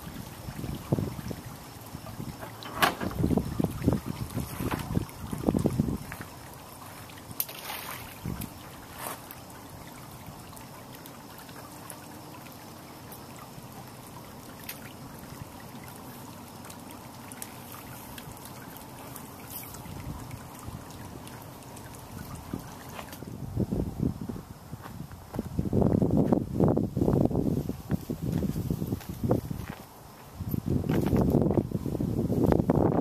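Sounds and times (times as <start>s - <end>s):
water lapping against metal hull: 0.0s - 23.4s.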